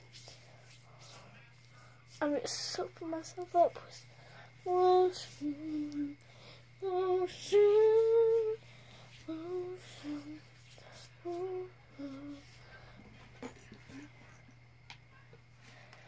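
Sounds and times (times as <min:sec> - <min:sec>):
young girl singing: 0:02.2 - 0:12.9.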